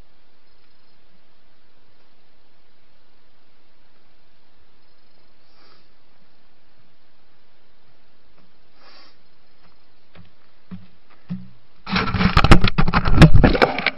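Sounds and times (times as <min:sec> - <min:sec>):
microphone hiss: 0:00.0 - 0:13.9
soft footsteps: 0:09.3 - 0:13.2
crackling and scraping handling: 0:10.2 - 0:13.9.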